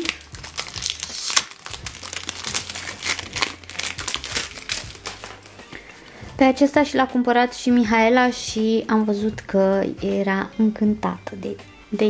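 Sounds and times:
cellophane crinkling: 0.0s - 5.7s.

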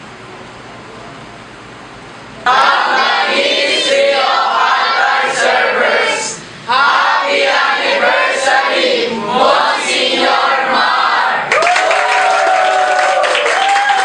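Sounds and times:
boys singing together: 2.5s - 11.5s.

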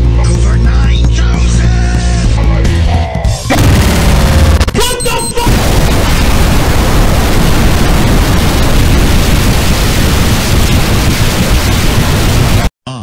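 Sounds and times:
music: 0.0s - 4.6s
energy beam blast: 3.5s - 12.7s.

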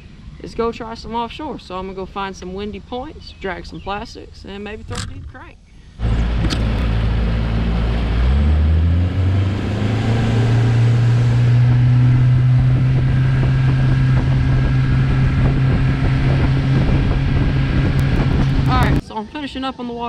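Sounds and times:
outboard motor running: 4.9s - 19.0s.

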